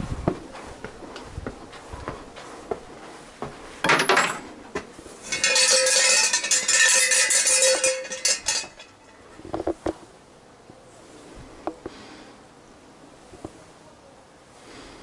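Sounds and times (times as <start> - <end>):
bell rattling and jingling: 5.2 - 8.8
clatter: 5.2 - 8.9.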